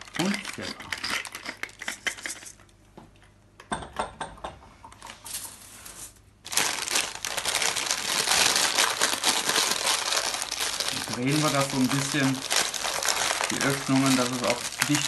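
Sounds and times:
baking paper crinkling: 5.1s - 15.0s.

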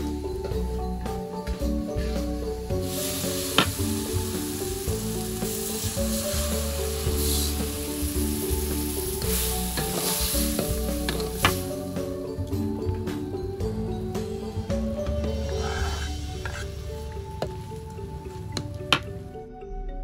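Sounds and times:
soft background music: 0.0s - 20.0s
paste sizzling in wok: 2.0s - 12.5s, 14.4s - 18.0s.

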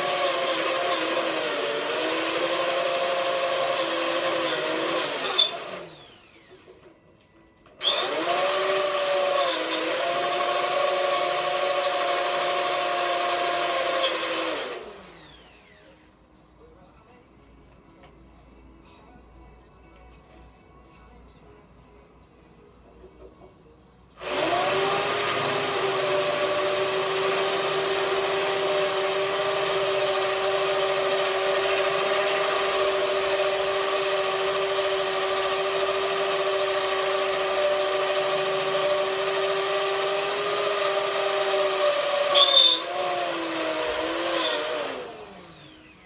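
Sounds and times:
power tool cutting steel: 0.0s - 6.7s, 7.8s - 16.0s, 24.2s - 46.0s.

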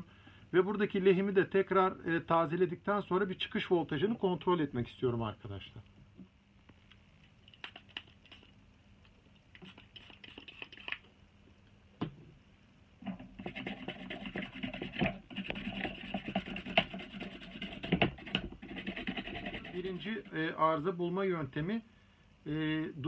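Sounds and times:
toothbrush scrubbing circuit board: 9.6s - 11.0s, 13.1s - 20.5s.

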